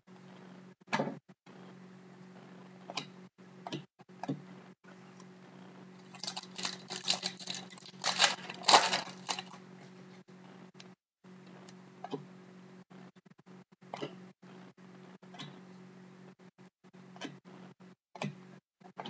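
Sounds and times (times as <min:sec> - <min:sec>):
foil wrapper crinkling and tearing: 0:06.0 - 0:09.7.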